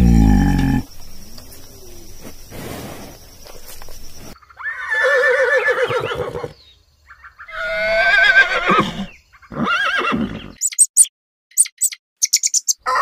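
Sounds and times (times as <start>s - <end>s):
horse whinnying: 4.6s - 6.6s, 7.5s - 10.6s.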